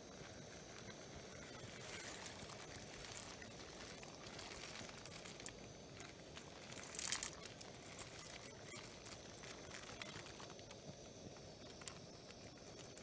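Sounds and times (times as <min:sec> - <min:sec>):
plastic bag crinkling: 0:00.0 - 0:13.0
steady low hiss: 0:00.0 - 0:13.0
dry pasta pouring into pot: 0:01.8 - 0:10.5.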